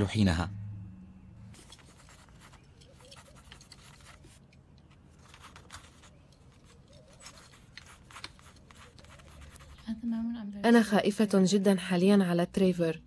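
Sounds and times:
paintbrush strokes on canvas: 5.1 - 9.9.

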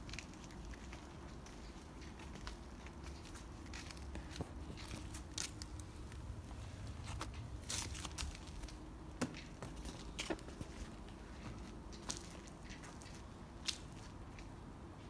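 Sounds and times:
low steady hum: 0.0 - 15.0
paws scampering and batting ball: 6.8 - 13.8.

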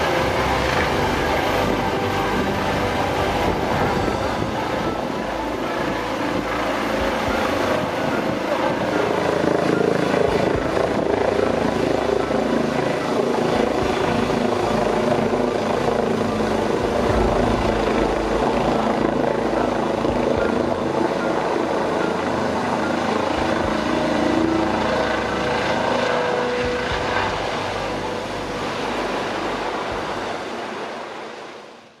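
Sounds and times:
helicopter rotor and turbines: 0.0 - 31.7.

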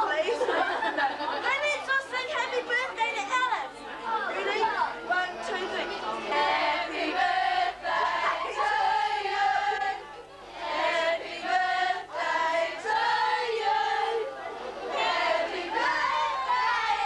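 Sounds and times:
girls singing together: 5.0 - 17.0.

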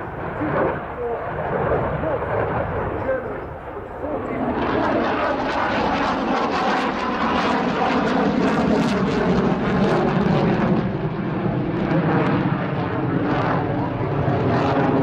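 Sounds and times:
jet engine roar: 0.0 - 15.0.

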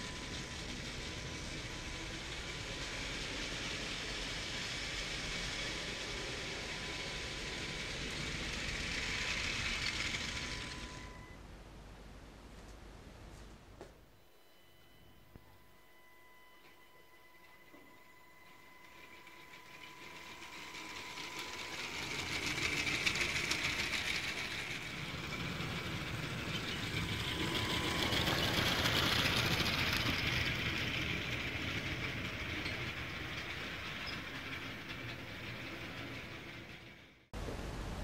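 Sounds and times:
plastic wheels clicking on track: 5.0 - 11.0, 18.9 - 36.8
small electric motor whirring: 17.4 - 35.9.

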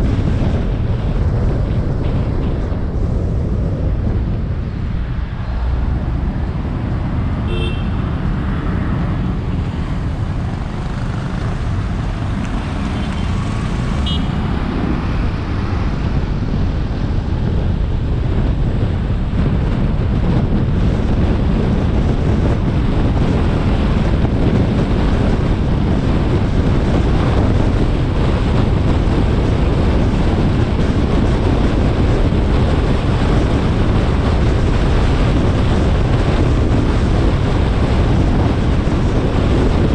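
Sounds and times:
car road noise: 0.0 - 39.9.

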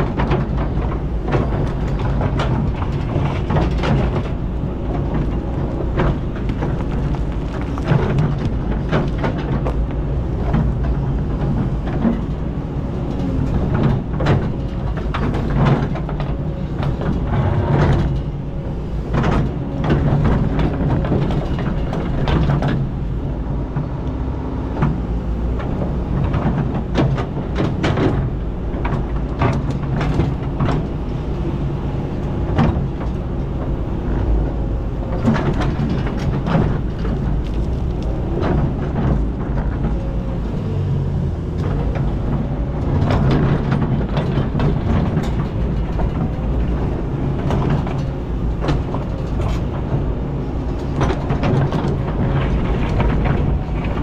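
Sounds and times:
excavator diesel engine: 0.0 - 54.0
bucket knocking and scraping rocks: 1.4 - 11.8.

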